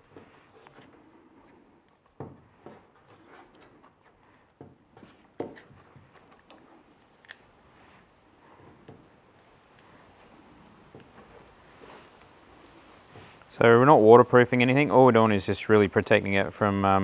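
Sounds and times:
plastic conduit crinkling and knocking: 0:00.0 - 0:07.4, 0:08.5 - 0:12.3.

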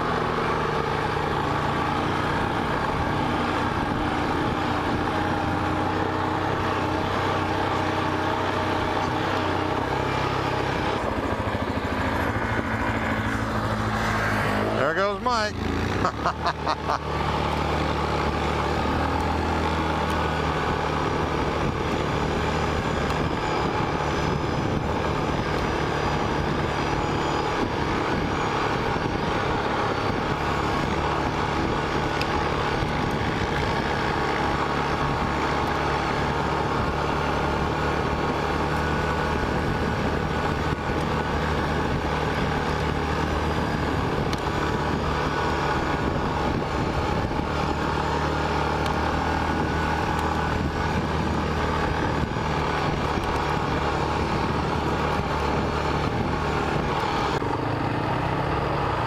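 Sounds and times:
quad engine running: 0:00.0 - 0:59.0.

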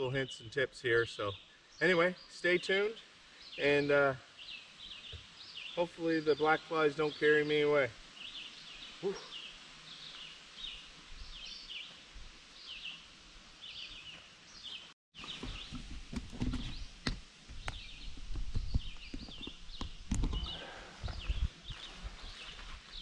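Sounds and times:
songbird singing high phrases: 0:00.0 - 0:12.0, 0:17.6 - 0:23.0
outdoor background noise: 0:00.0 - 0:23.0.

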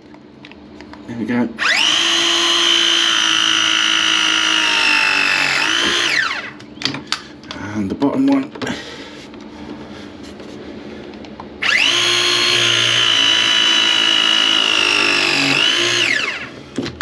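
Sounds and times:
pipe press tool motor whining: 0:01.6 - 0:06.6, 0:11.6 - 0:17.0.

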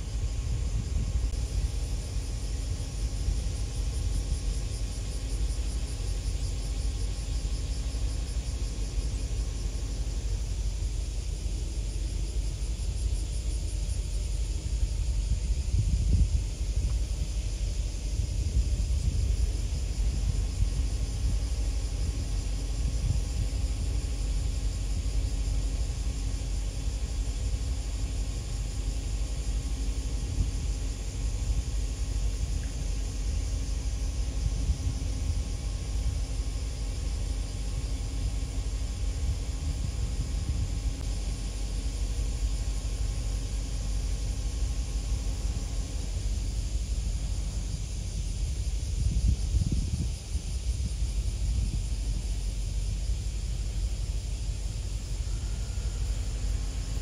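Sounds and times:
wind buffeting microphone: 0:00.0 - 0:05.6, 0:13.9 - 0:42.0, 0:45.2 - 0:55.0
faint steady hum: 0:00.0 - 0:57.0
ship engine rumble: 0:00.0 - 0:57.0.

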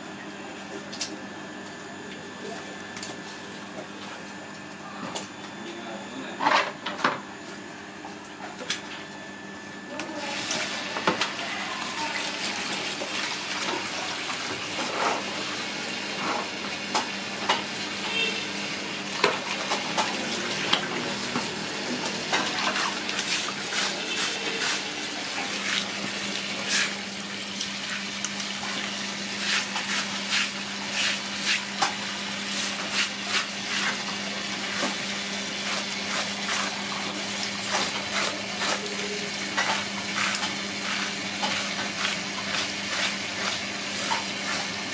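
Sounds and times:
water running from a hose: 0:10.1 - 0:44.9.

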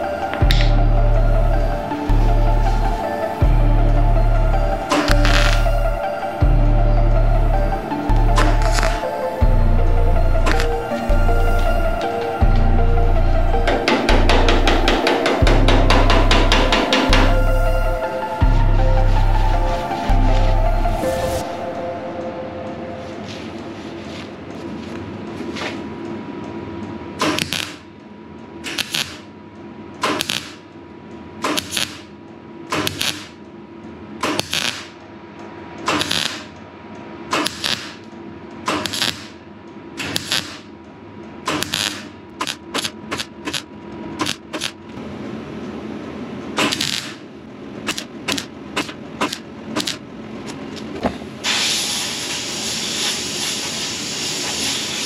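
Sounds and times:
welder arc bursts: 0:28.7 - 0:29.2, 0:51.4 - 0:55.0
steady hiss: 0:51.4 - 0:55.0.

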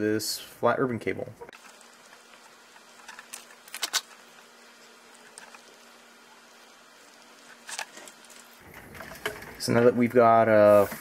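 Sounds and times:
ribbon cable tearing: 0:03.2 - 0:04.2.

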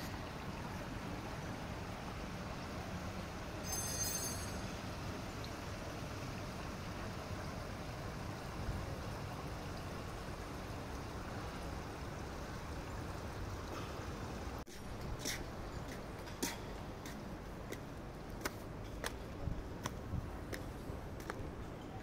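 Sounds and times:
outdoor background hiss: 0:00.0 - 0:22.0
footsteps on stone and sand: 0:14.7 - 0:21.8.

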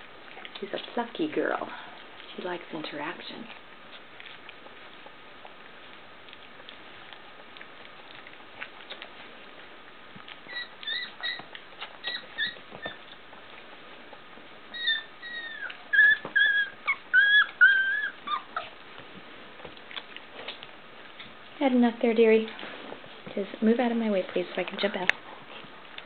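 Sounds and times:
puppies whimpering and squeaking: 0:10.2 - 0:18.9
soft clicking and shuffling: 0:18.5 - 0:26.0.

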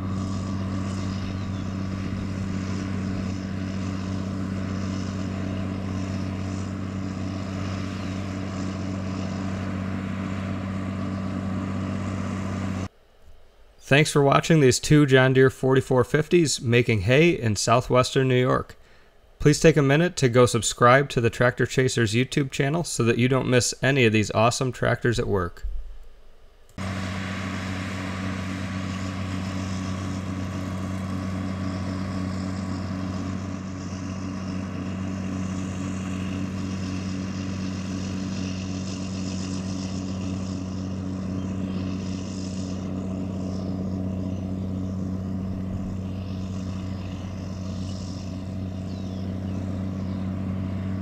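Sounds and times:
tractor diesel engine under load: 0:00.0 - 0:12.9, 0:26.8 - 0:51.0.

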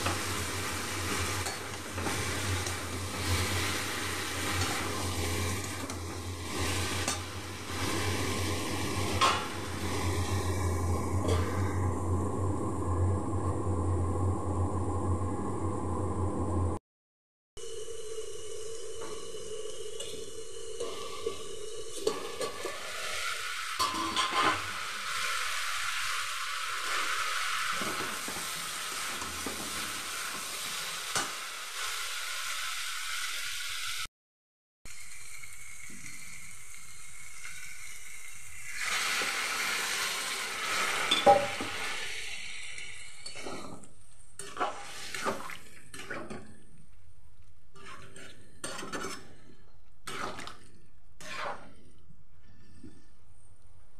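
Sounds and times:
metal spatula scraping pan: 0:22.0 - 0:24.7, 0:47.7 - 0:50.5, 0:51.2 - 0:51.9
curry sizzling in pan: 0:22.2 - 0:34.1, 0:34.9 - 0:43.3.

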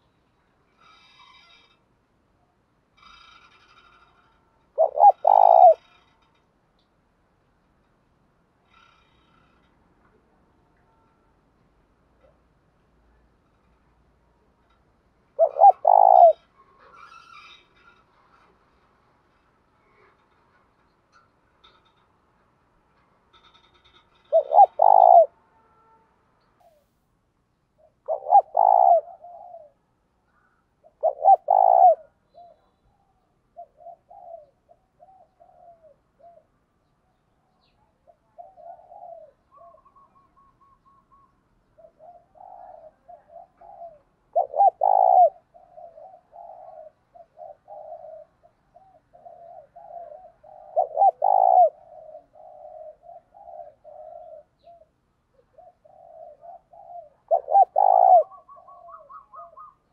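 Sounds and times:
dove cooing: 0:00.8 - 0:01.8, 0:03.0 - 0:06.3, 0:15.3 - 0:18.5, 0:23.4 - 0:25.4, 0:27.8 - 0:36.6, 0:37.6 - 0:59.9.

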